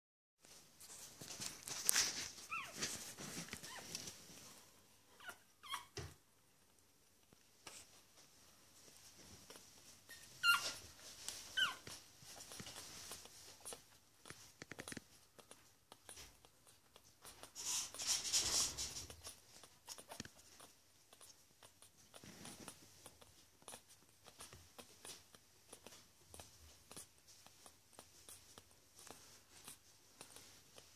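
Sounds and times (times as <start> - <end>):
soft shuffle: 0.4 - 5.3, 6.0 - 30.9
puppies squeaking and whimpering: 2.4 - 2.9, 3.6 - 4.1, 5.1 - 6.1, 10.1 - 13.9
puppies suckling: 6.6 - 30.9.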